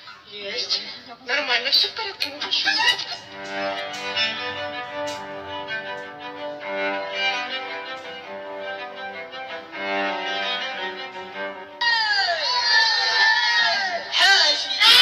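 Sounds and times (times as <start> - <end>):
violin melody: 2.0 - 11.8.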